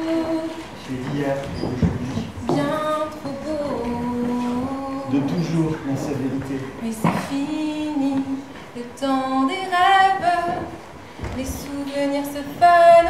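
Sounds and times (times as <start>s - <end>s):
woman singing a cappella: 0.0s - 0.9s, 2.3s - 5.6s, 6.8s - 13.0s.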